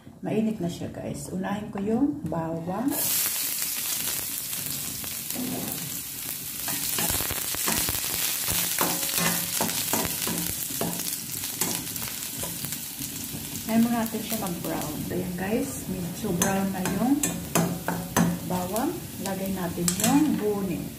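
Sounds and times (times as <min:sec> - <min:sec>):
garlic sizzling in oil: 0:02.8 - 0:20.9
spatula scraping pan: 0:06.6 - 0:13.3.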